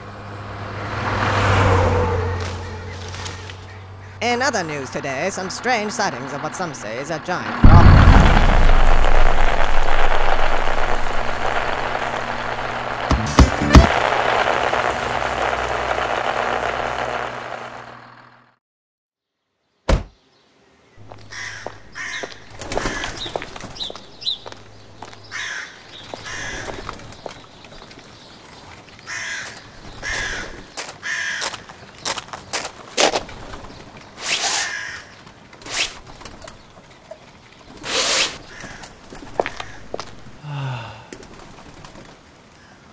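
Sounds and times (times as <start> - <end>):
faint outdoor background noise: 0.0 - 18.5, 19.2 - 42.9
crows cawing: 21.1 - 23.6, 25.2 - 27.2, 29.0 - 31.8, 34.6 - 35.2, 38.4 - 41.1, 42.6 - 42.9.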